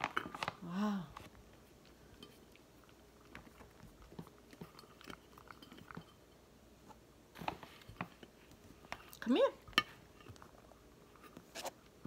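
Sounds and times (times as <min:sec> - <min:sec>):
cat chewing from metal bowl: 0:01.4 - 0:06.5.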